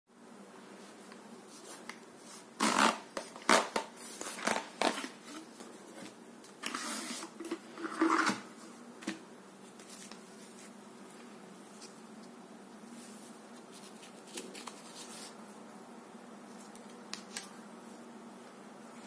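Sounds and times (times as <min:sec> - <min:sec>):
box lid scraping off: 0:06.6 - 0:08.5.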